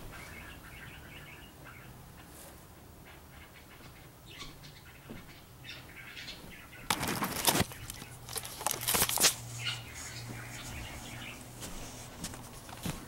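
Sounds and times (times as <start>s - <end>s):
camera handling rustle: 6.9s - 9.4s.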